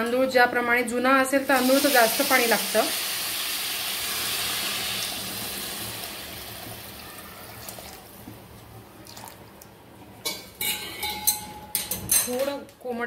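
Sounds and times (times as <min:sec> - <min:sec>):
water hissing in hot pot: 0:01.4 - 0:08.3.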